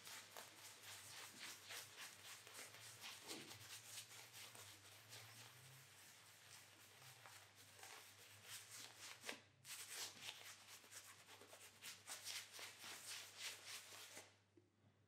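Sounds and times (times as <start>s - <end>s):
shaving brush swishing lather: 0.0s - 14.3s.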